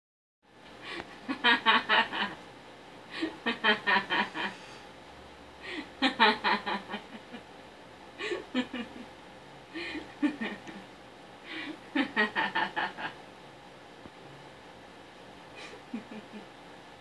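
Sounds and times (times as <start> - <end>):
woman laughing into paper bag: 15.6 - 16.4.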